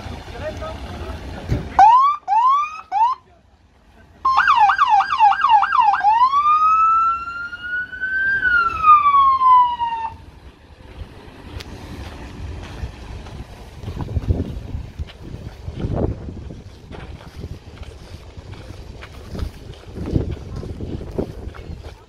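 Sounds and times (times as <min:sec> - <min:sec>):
police siren whooping and wailing: 0:01.8 - 0:03.2, 0:04.2 - 0:10.2.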